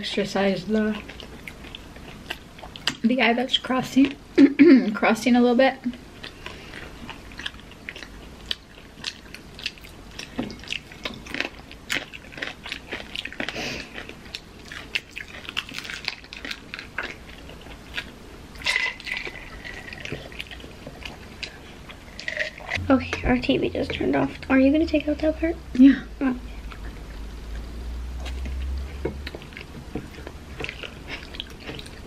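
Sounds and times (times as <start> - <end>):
crunchy food being chewed: 0.8 - 3.0, 5.9 - 22.8, 26.6 - 32.0.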